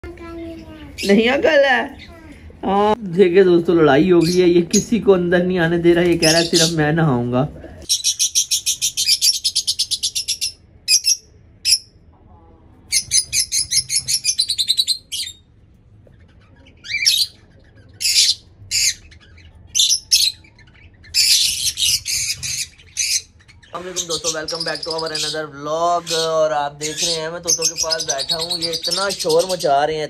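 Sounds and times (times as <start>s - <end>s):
parrots chattering: 0.1s - 2.6s, 4.0s - 5.0s, 6.0s - 12.0s, 12.8s - 30.0s.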